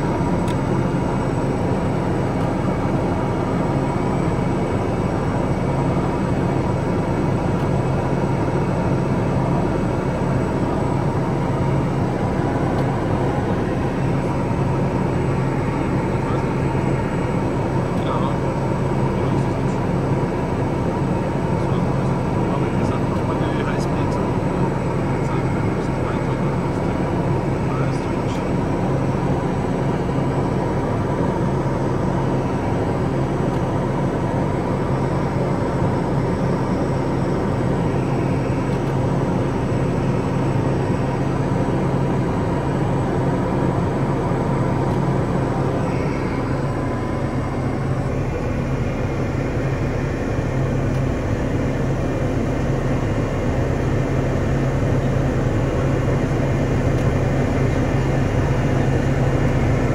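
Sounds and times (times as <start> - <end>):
turboprop engine cabin drone: 0.0 - 59.9.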